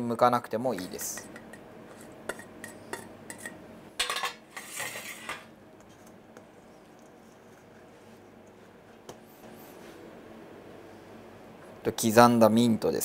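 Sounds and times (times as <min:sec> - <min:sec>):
utensil scraping steel bowl: 0:04.5 - 0:05.5.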